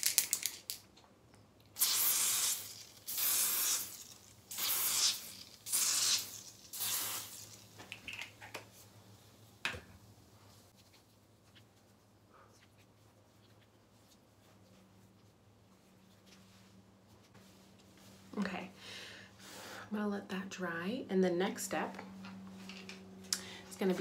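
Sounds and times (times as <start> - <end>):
aerosol can hissing foam: 1.8 - 7.6.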